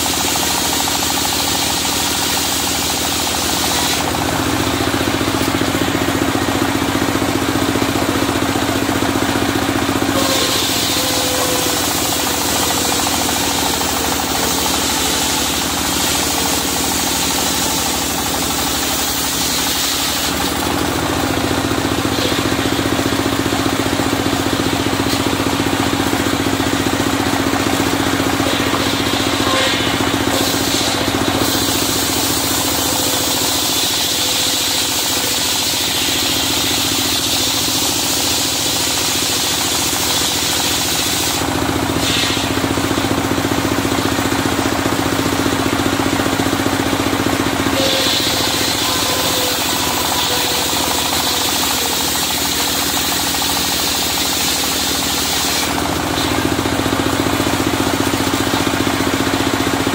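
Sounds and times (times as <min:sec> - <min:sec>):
sawmill engine running: 0:00.0 - 0:59.9.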